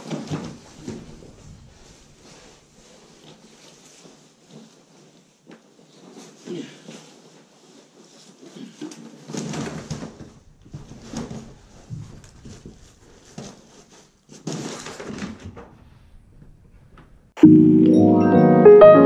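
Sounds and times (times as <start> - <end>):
rustling and scraping: 0.0 - 17.3
piano music: 17.4 - 19.0.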